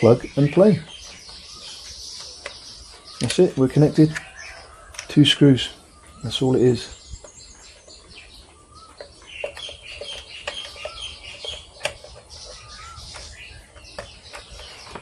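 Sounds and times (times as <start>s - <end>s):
birds chirping and whistling: 0.0s - 15.0s
plastic parts clicking and knocking: 2.2s - 5.2s, 8.8s - 15.0s.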